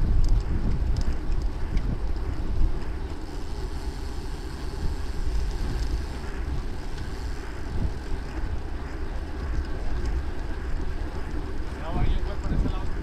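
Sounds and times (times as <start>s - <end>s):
wind rumbling over microphone: 0.0s - 13.0s.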